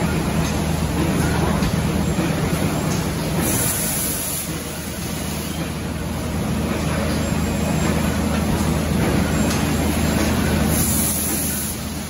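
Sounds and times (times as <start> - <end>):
factory machinery humming: 0.0 - 12.0.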